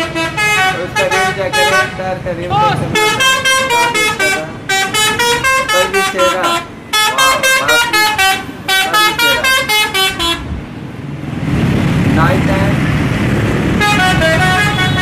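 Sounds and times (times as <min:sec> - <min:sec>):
musical bus horn tune: 0:00.0 - 0:02.0, 0:02.9 - 0:10.5, 0:13.8 - 0:15.0
steady noisy rumble: 0:00.0 - 0:15.0.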